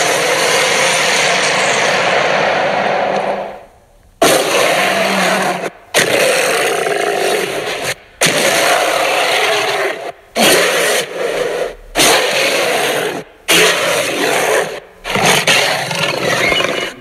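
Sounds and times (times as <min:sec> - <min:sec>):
creature roars: 0:04.2 - 0:17.0.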